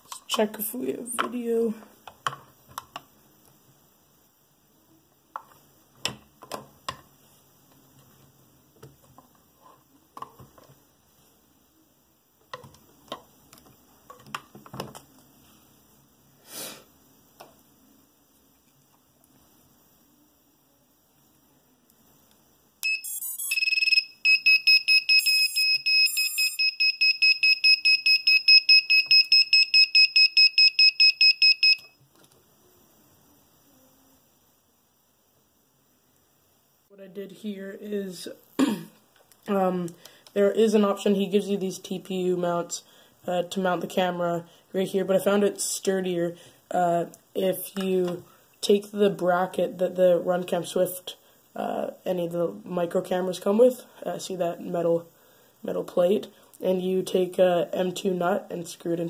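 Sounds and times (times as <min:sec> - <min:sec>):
high electronic beeps: 0:22.8 - 0:32.0
quick stepped electronic tones: 0:22.8 - 0:32.0.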